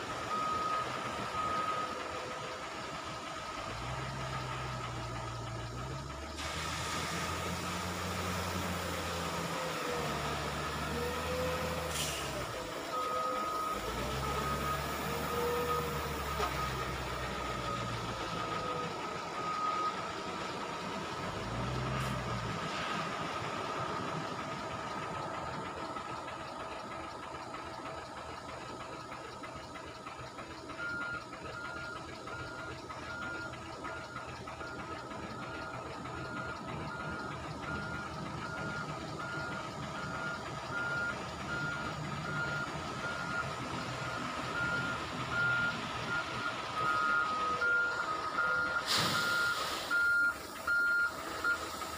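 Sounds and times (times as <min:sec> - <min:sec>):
diesel trucks running: 0:00.0 - 0:51.9
reversing alarm beeping: 0:00.1 - 0:02.5, 0:10.6 - 0:20.5, 0:30.7 - 0:51.9.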